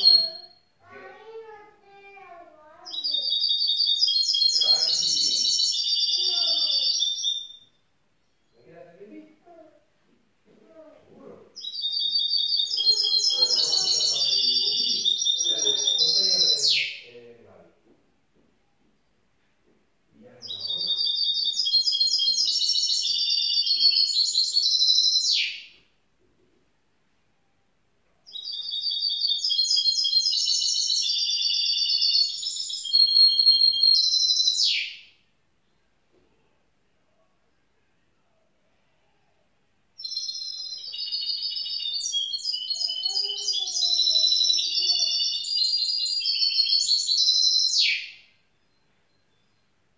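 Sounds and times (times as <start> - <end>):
bird twittering song: 0.0 - 0.6, 2.7 - 9.1, 11.2 - 17.3, 20.2 - 25.8, 28.3 - 35.2, 40.0 - 49.8.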